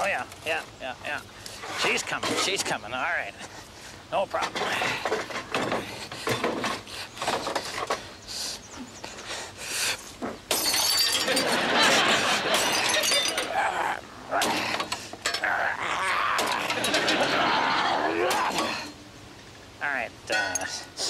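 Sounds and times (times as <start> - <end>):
headlight glass shattering: 10.5 - 11.5.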